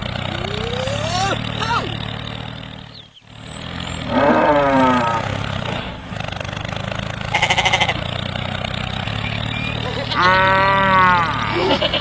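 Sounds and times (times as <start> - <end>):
tractor engine humming: 0.0 - 12.0
quavering bleat: 7.3 - 8.1, 10.0 - 12.0.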